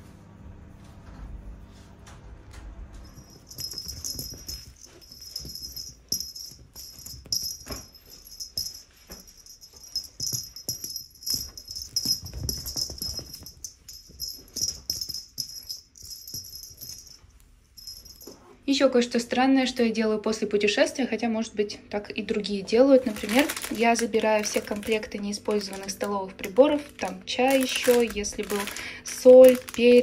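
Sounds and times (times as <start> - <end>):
cat moving and playing: 3.0 - 18.5, 23.0 - 30.0
light background music: 20.6 - 30.0.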